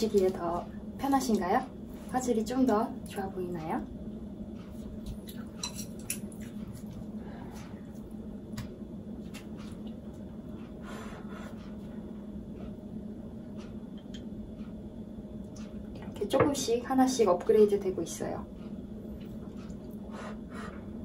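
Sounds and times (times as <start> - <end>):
steady low hum: 0.0 - 21.0
quiet eating sounds: 4.4 - 16.0, 18.5 - 21.0.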